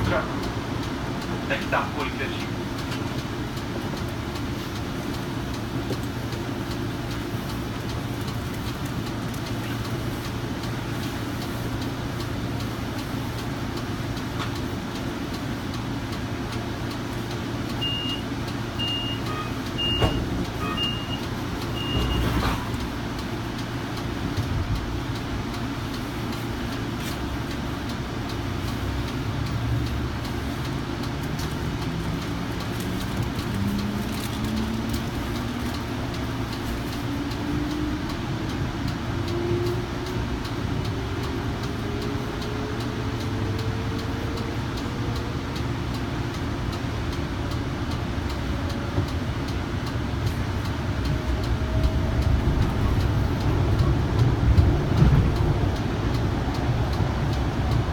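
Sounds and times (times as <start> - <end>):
train equipment hum: 0.0 - 57.9
door warning chime beeps: 17.8 - 22.4.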